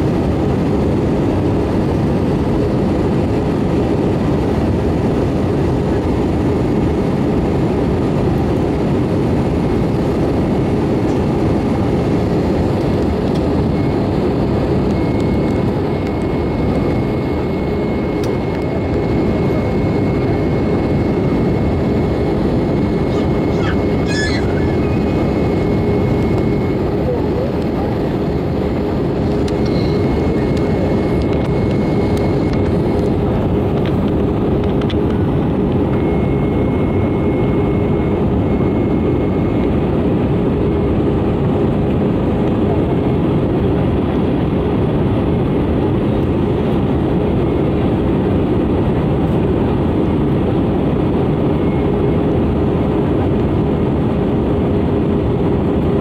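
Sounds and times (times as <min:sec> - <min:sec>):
airplane cabin engine rush: 0:00.0 - 0:56.0
low cabin hum: 0:07.9 - 0:42.0.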